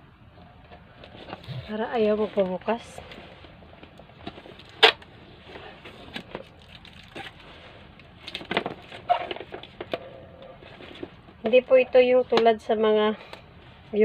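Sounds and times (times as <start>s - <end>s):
box and plastic case handled: 0.5s - 11.6s.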